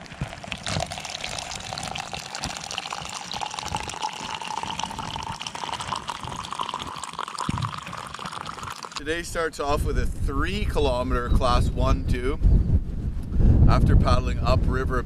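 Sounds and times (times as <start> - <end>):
coffee pouring into a cup: 0.0 - 9.1.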